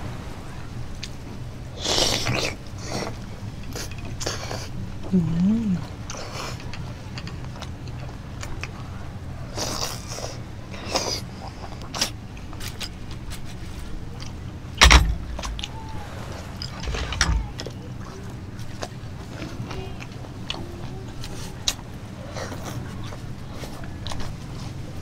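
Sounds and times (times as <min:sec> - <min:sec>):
steady low hum: 0:00.0 - 0:25.0
soft mouth noises: 0:01.8 - 0:06.9.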